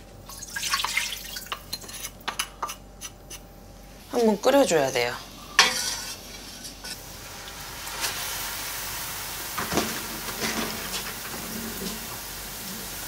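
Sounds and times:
sauce sizzling and bubbling: 0:05.3 - 0:13.0
metal utensil clattering on pan: 0:05.6 - 0:07.0, 0:09.6 - 0:12.0.

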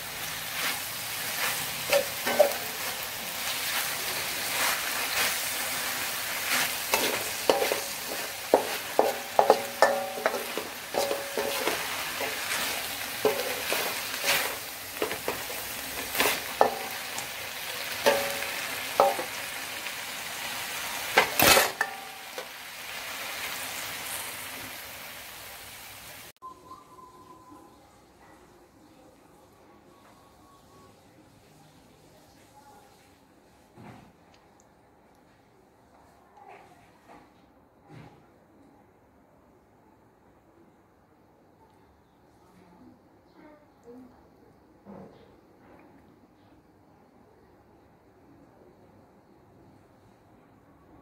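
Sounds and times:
food sizzling in a wok: 0:00.0 - 0:26.3
metal spatula scraping a wok: 0:00.4 - 0:17.3, 0:18.0 - 0:19.4, 0:21.1 - 0:22.5.

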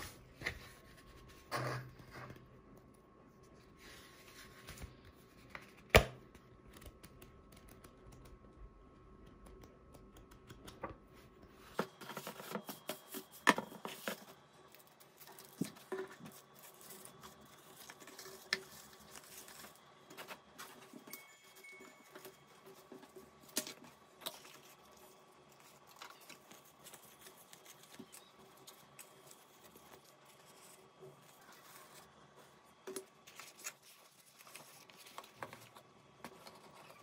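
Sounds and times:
paper and cardboard rustling: 0:11.1 - 0:37.0.

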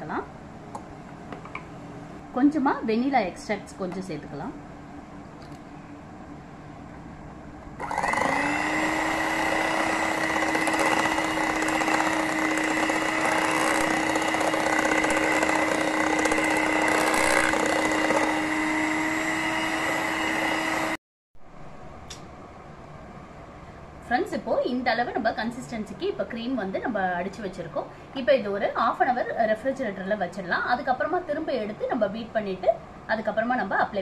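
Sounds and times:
electric hand mixer whipping cream: 0:07.8 - 0:21.0.

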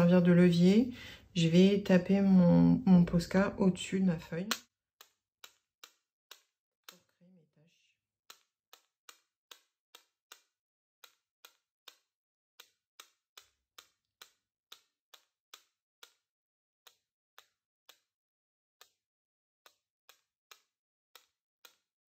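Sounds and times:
marker tapping on scissor blade: 0:04.5 - 0:07.1, 0:08.3 - 0:16.2, 0:16.9 - 0:18.1, 0:18.8 - 0:19.0, 0:19.7 - 0:21.9.

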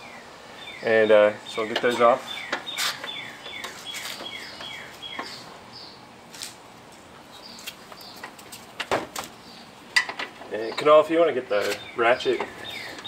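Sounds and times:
bird whistling chirps: 0:12.6 - 0:13.0.

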